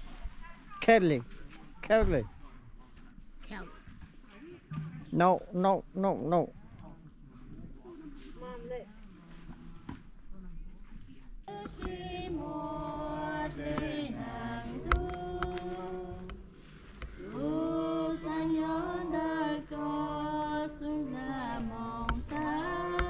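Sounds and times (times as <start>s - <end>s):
voices chanting: 11.5s - 23.0s.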